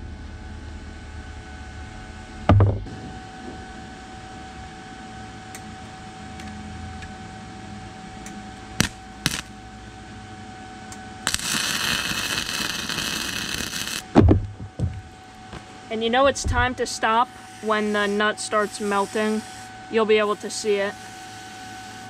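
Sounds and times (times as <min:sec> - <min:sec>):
steady hum: 0:00.0 - 0:22.0
loud thump: 0:02.5 - 0:03.7, 0:14.1 - 0:15.0, 0:16.4 - 0:16.8
welder arc crackling: 0:08.8 - 0:09.6, 0:11.2 - 0:15.6.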